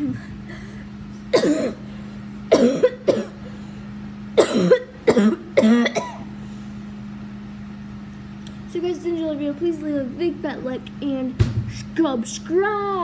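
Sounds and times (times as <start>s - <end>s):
child coughing: 1.3s - 1.9s, 2.5s - 3.5s, 4.4s - 6.3s.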